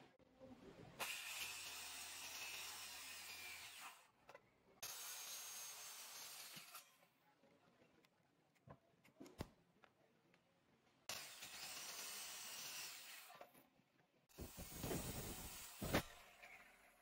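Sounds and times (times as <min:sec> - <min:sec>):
circular saw cutting wood: 0:01.0 - 0:04.0, 0:04.8 - 0:07.0, 0:11.1 - 0:13.4.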